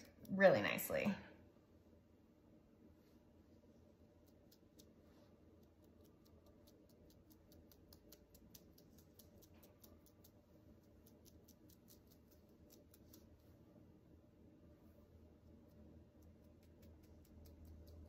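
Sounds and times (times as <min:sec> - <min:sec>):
paintbrush bristles ticking: 0:04.2 - 0:13.4, 0:15.5 - 0:18.0.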